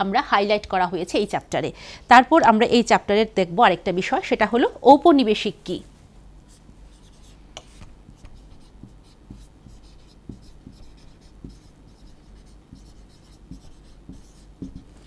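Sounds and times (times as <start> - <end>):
marker pen writing on whiteboard: 6.5 - 15.0.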